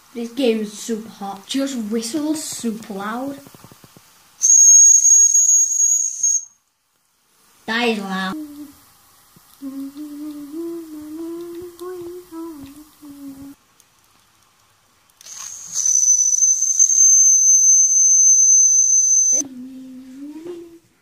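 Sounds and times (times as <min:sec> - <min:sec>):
steam whistle: 0:04.4 - 0:06.6, 0:15.3 - 0:19.4
person humming: 0:08.4 - 0:08.8, 0:09.6 - 0:13.6, 0:19.4 - 0:21.0.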